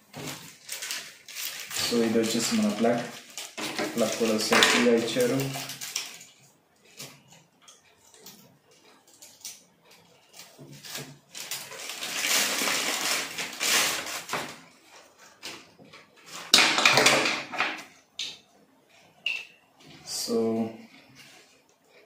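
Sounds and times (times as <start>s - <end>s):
plastic bag crinkling: 0.0s - 6.4s, 10.4s - 15.5s.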